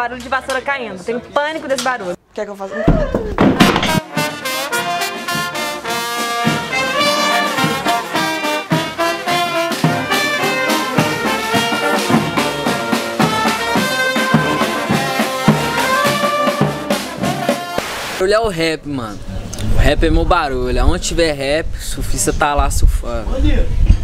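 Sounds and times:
marching brass band playing: 3.6 - 18.2.

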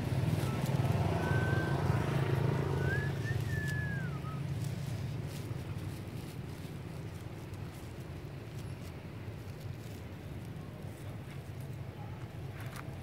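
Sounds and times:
vehicle engine humming: 0.0 - 13.0
thin whistled calls: 0.4 - 4.7.

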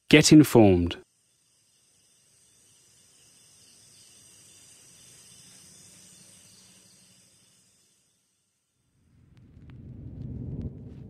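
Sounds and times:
high insect-like chirring: 1.0 - 9.1.

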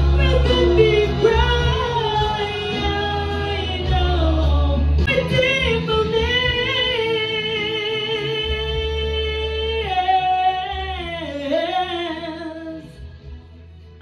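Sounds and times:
woman singing into microphone: 0.0 - 13.1
instrumental accompaniment with bass: 0.0 - 14.0.

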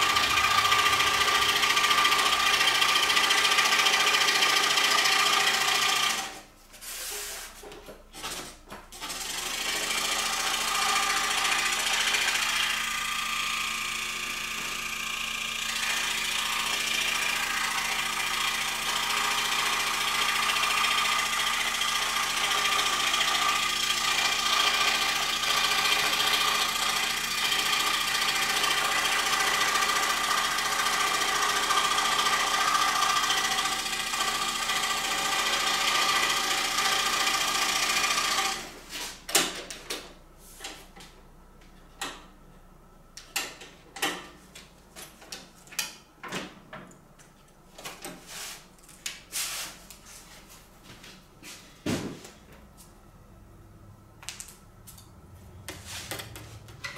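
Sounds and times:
scroll saw running: 0.0 - 6.5, 9.0 - 39.0.

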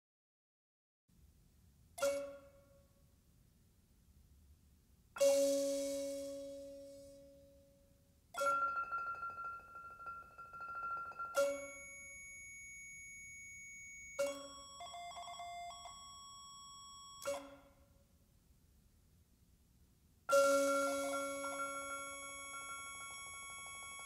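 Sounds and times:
bell-like ringing tones: 8.4 - 17.8, 20.3 - 24.0.

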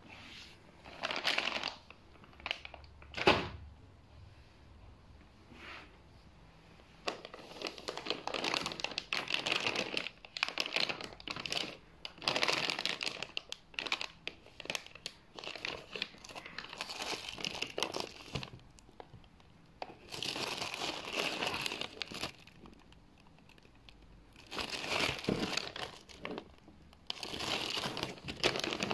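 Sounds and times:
plastic bag crinkling: 0.8 - 3.2, 7.0 - 28.9.

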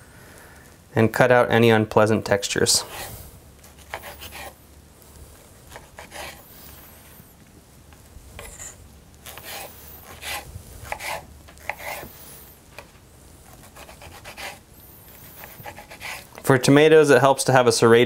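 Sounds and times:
serrated knife sawing tomatoes: 2.8 - 4.6, 5.7 - 7.0, 8.4 - 12.2, 13.5 - 16.5.

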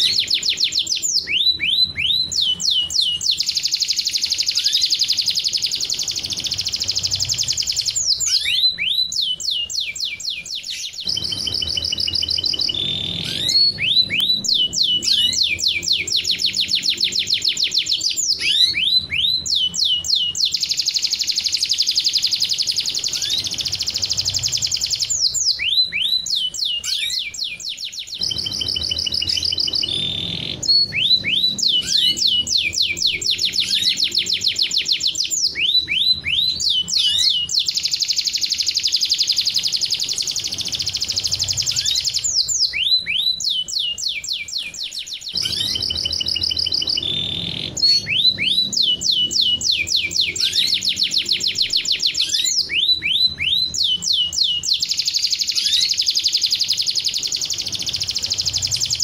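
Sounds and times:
canary song with trills: 0.0 - 59.0.

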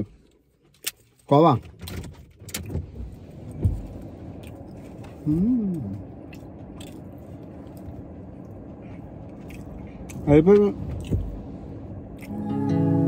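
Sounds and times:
car cabin hum: 0.0 - 13.0
person humming: 5.2 - 6.0, 12.2 - 13.0.

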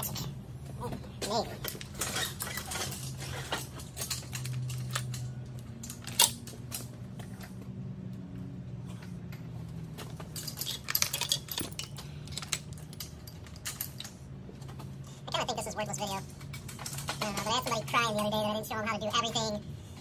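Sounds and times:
metallic clinks and knocks: 1.2 - 7.6, 9.2 - 14.9, 16.3 - 17.8.

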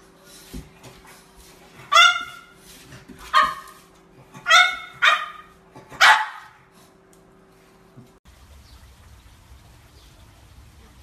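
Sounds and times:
dog barking: 1.9 - 2.6, 3.3 - 3.8, 4.4 - 6.6.

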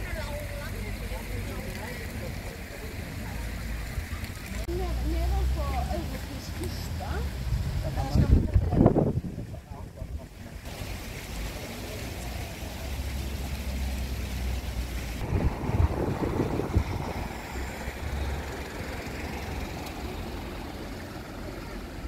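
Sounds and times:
road traffic rumble: 0.0 - 22.0
wind on microphone: 7.4 - 10.5, 15.2 - 18.5.

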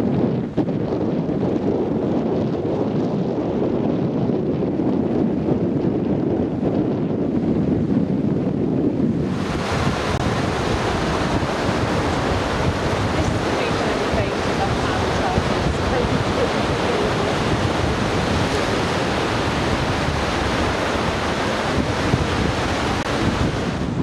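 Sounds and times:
wind buffeting microphone: 0.0 - 24.0
waves breaking on beach: 9.1 - 24.0.

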